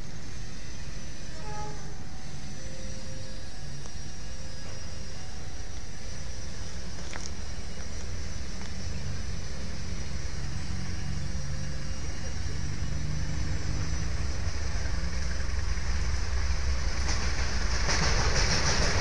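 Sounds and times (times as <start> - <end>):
diesel locomotive engine drone: 0.0 - 19.0.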